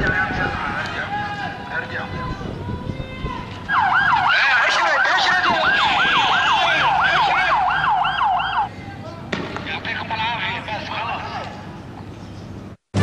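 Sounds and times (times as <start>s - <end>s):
police siren yelping: 3.6s - 8.7s.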